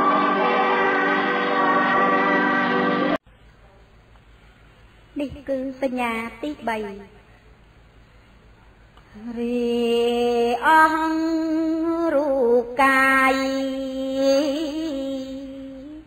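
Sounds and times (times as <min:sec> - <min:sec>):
woman chanting unaccompanied verse: 0:09.2 - 0:16.0.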